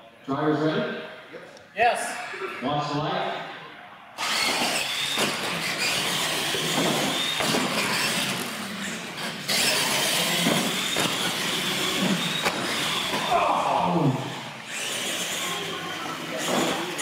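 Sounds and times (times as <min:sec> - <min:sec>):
tyres rolling on concrete: 0:04.2 - 0:13.4
toy truck motors whining: 0:04.2 - 0:17.0.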